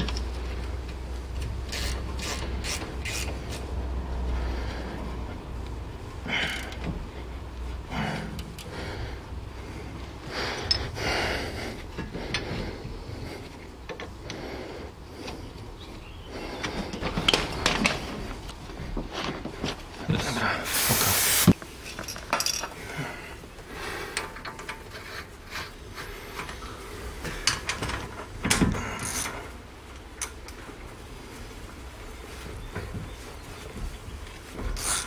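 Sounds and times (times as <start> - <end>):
hiss ending in a click: 20.7 - 21.6
metal tools clinking on wheel hub: 21.8 - 22.8.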